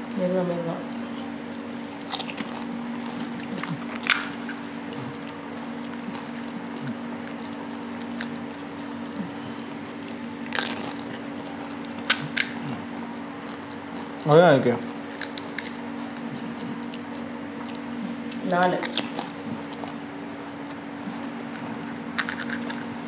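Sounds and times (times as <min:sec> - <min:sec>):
steady low hum: 0:00.0 - 0:23.0
crisp shells cracking and crunching: 0:01.6 - 0:04.8, 0:10.1 - 0:12.7, 0:13.5 - 0:16.2, 0:21.6 - 0:22.9.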